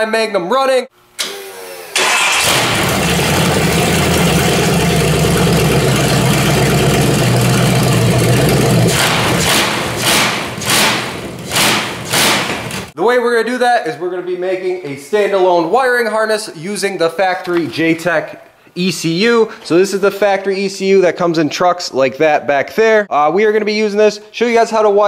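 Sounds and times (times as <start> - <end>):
vee eight engine cranking and running: 2.0 - 12.1
engine revving: 2.0 - 12.5.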